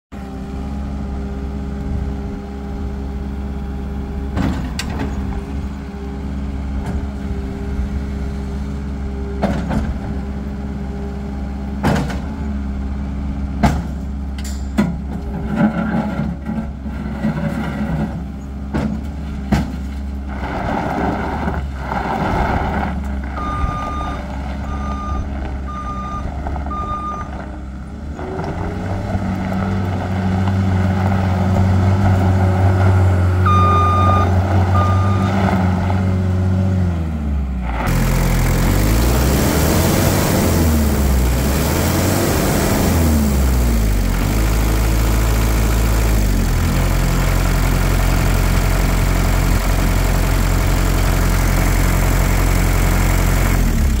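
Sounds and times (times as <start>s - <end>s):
diesel engine revving: 0.1s - 54.0s
backup alarm beeping: 23.4s - 27.3s, 33.4s - 35.3s.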